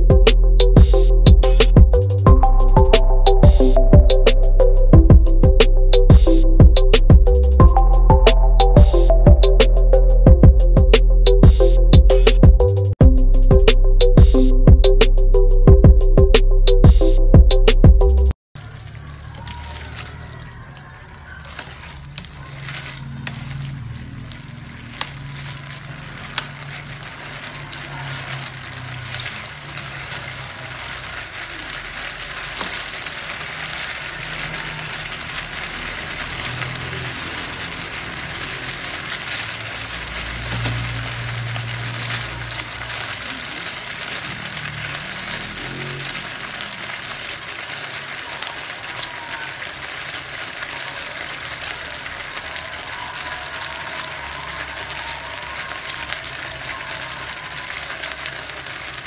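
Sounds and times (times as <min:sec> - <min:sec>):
meat sizzling in a pan: 0:18.6 - 0:59.0.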